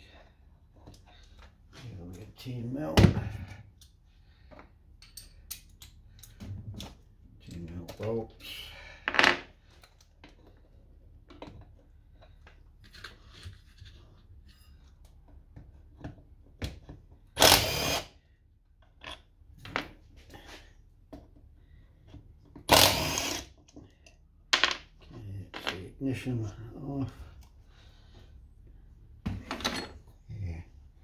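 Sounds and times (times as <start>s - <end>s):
cordless drill running: 17.4s - 18.1s, 22.7s - 23.5s.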